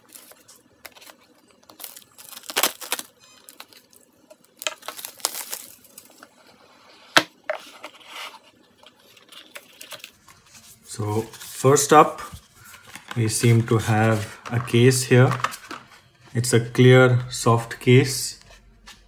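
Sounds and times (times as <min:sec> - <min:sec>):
plastic shrink-wrap crinkling: 0:00.0 - 0:06.3.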